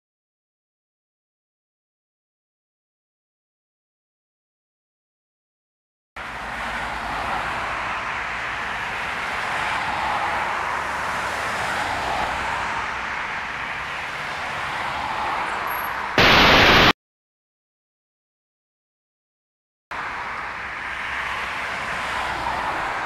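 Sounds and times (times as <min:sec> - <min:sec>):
highway traffic tyre hiss: 0:06.2 - 0:16.9, 0:20.0 - 0:23.0.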